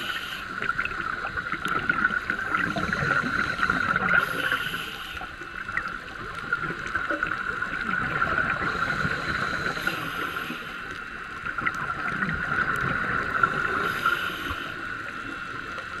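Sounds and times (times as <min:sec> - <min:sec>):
regulator inhalation hisses: 0:00.0 - 0:00.6, 0:02.6 - 0:05.5, 0:08.7 - 0:11.0, 0:13.6 - 0:15.0.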